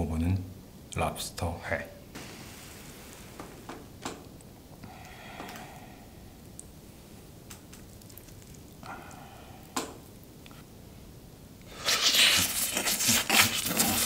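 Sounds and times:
soft wet squishes: 2.2s - 10.8s.

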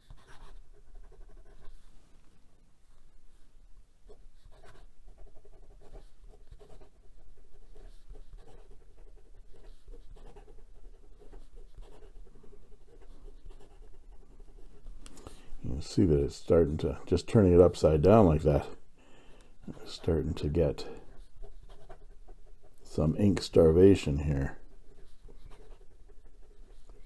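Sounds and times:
pen nib scratching on paper: 0.0s - 1.8s, 4.1s - 15.4s, 19.6s - 27.0s.

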